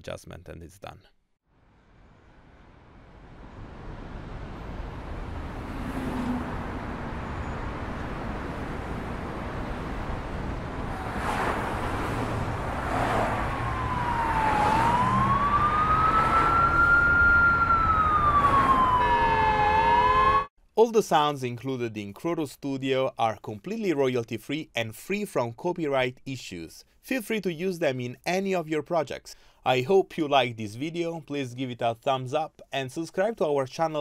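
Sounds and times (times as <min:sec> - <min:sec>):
city traffic: 0:01.6 - 0:20.5
siren wailing: 0:12.8 - 0:20.5
car horn: 0:18.9 - 0:20.5.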